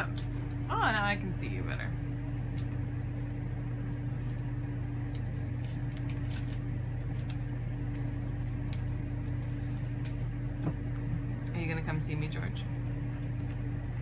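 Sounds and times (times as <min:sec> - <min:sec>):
tape crackling and rustling: 0:00.0 - 0:01.0, 0:02.3 - 0:11.6
steady low hum: 0:00.0 - 0:14.0.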